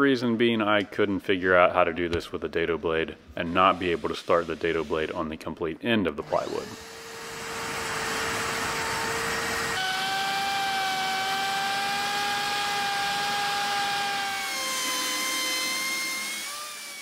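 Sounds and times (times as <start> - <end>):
router whining cutting plywood: 6.2 - 17.0.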